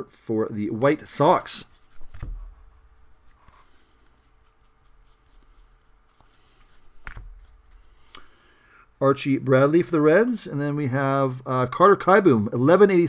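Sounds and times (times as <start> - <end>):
cards rustling on a table: 1.6 - 8.4.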